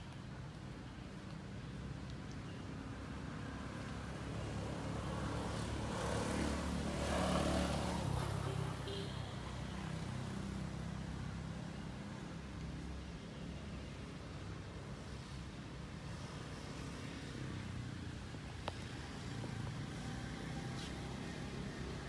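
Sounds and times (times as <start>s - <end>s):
motor vehicle passing by: 3.4s - 12.2s, 16.1s - 22.0s.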